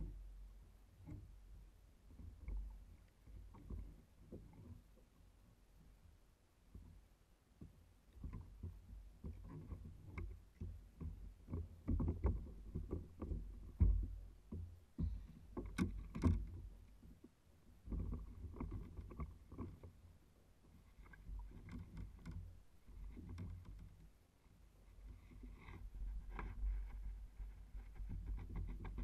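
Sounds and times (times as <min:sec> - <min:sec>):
knocks and thumps on a kayak: 0:00.0 - 0:05.2, 0:07.6 - 0:29.0
low uneven rumble: 0:00.0 - 0:29.0.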